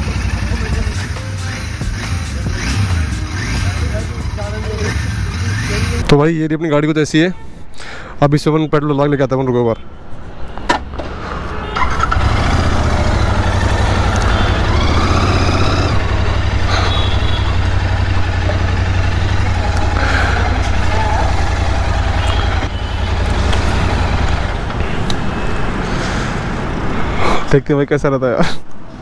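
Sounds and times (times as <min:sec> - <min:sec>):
motorcycle engine running: 0:00.0 - 0:06.1, 0:12.0 - 0:24.8.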